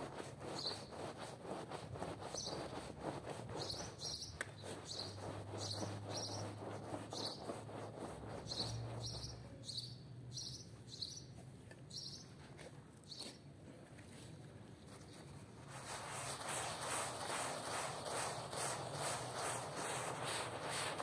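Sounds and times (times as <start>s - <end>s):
hand working wet foam: 0.0s - 9.6s, 14.9s - 21.0s
brush scrubbing foamy rug: 0.0s - 9.8s, 15.4s - 21.0s.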